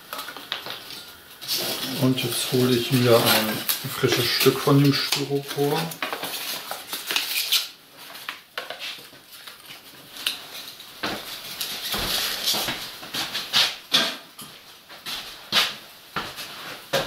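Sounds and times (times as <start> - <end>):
paper and foam rustling: 0.0 - 17.0.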